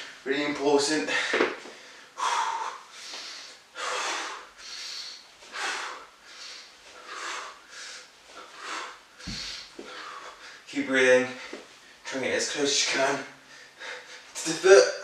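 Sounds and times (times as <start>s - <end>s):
man breathing hard in puffs: 1.1s - 10.7s, 13.3s - 14.4s.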